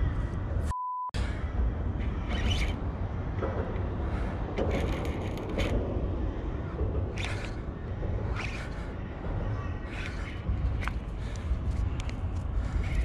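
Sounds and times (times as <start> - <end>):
steady low rumble: 0.0 - 13.0
rasping bursts: 2.0 - 3.2, 3.9 - 11.6
fishing reel cranking: 2.3 - 2.8.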